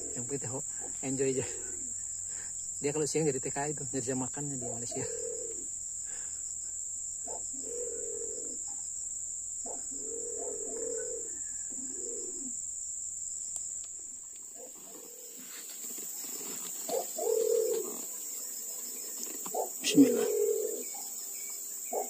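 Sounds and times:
pigeon cooing: 0.0s - 2.0s, 4.8s - 5.7s, 7.3s - 8.7s, 9.7s - 12.6s, 16.4s - 21.2s
high-pitched insect drone: 0.0s - 22.0s.

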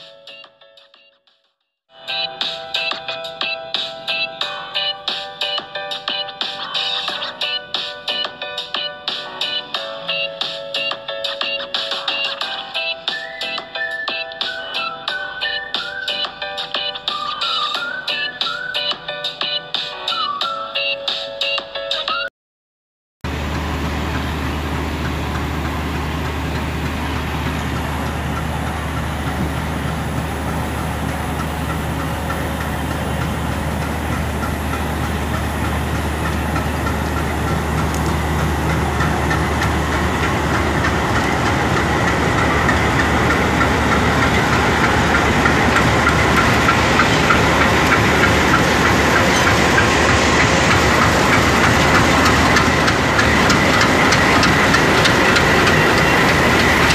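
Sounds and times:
diesel locomotive engines droning: 2.0s - 18.9s, 23.3s - 56.9s
train wheels rattling: 23.3s - 56.9s.

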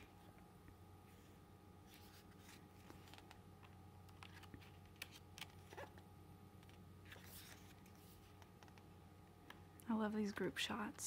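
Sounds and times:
paper pages rustling: 1.8s - 6.0s, 6.6s - 8.8s.

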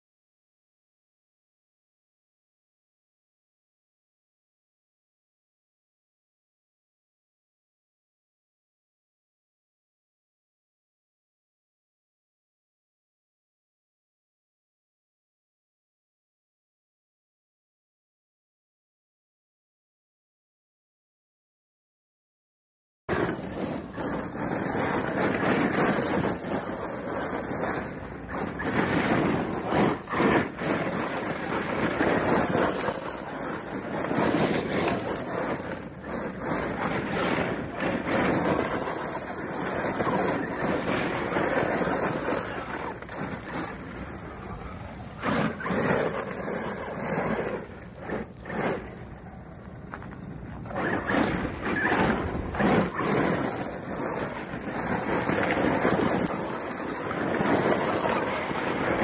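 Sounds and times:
tyres spinning on gravel: 23.1s - 59.0s.

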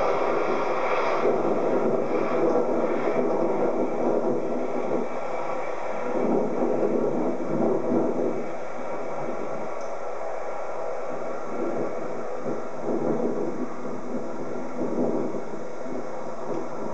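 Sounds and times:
jet engines rushing: 0.0s - 16.9s.

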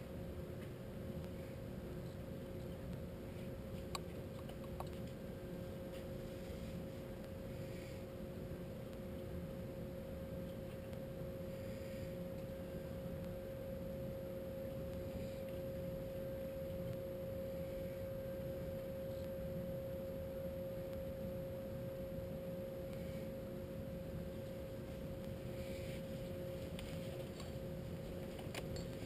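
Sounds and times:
steady humming tone: 0.0s - 29.0s
fainter lower tone: 8.7s - 29.0s.

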